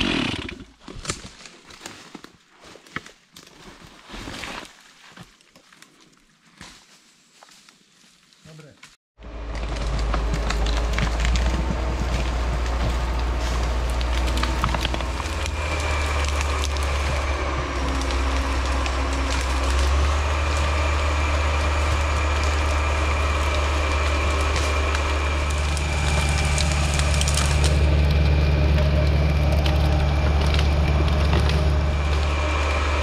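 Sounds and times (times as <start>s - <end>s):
log dragged through brush: 0.0s - 6.0s, 9.3s - 33.0s
branches cracking and snapping: 0.4s - 7.8s, 9.2s - 33.0s
diesel engine and winch drone: 9.2s - 33.0s.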